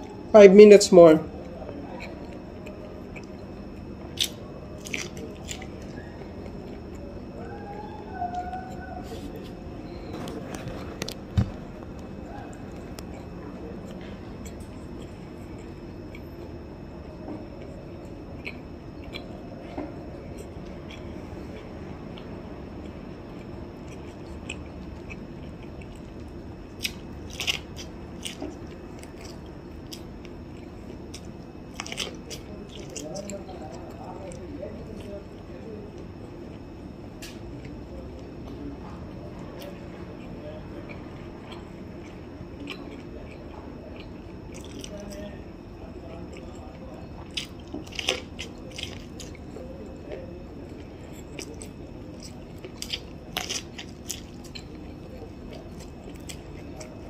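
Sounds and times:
steady low hum: 0.0s - 57.0s
wet chewing of corn: 1.3s - 57.0s.

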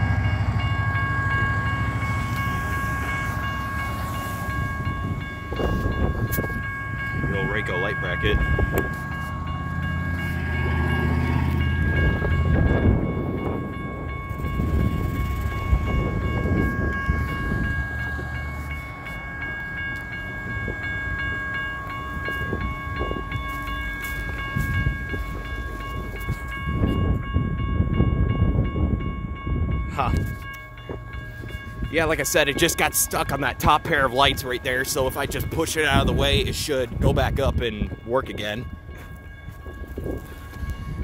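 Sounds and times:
railroad crossing bell ringing: 0.0s - 41.0s.

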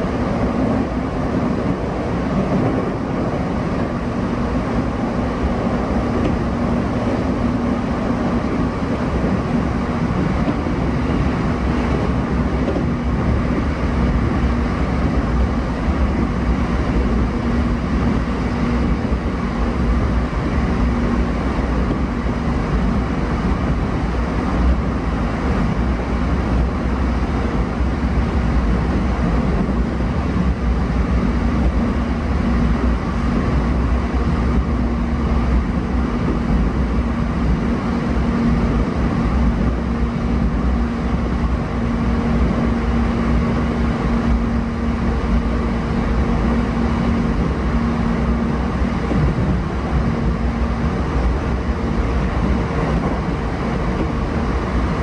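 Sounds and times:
constant low hum: 0.0s - 55.0s
train wheels rumbling on rails: 0.0s - 55.0s.

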